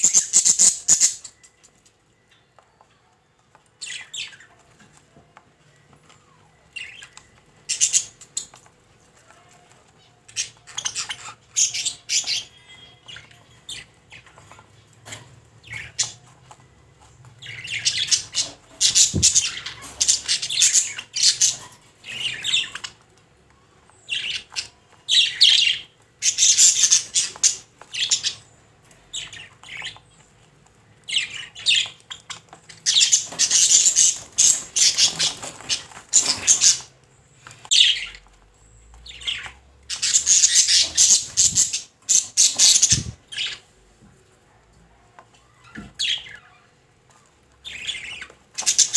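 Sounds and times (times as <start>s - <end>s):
budgerigar chirping: 0.0s - 1.4s, 31.1s - 36.9s, 39.2s - 43.6s.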